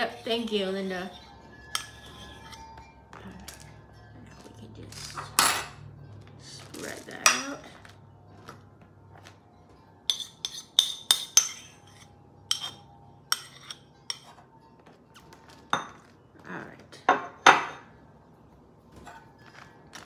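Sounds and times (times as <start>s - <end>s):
spoon scraping ceramic dish: 0.0s - 3.6s, 10.1s - 14.5s
metal spoon clinking on bowl: 0.1s - 3.6s, 10.1s - 14.5s.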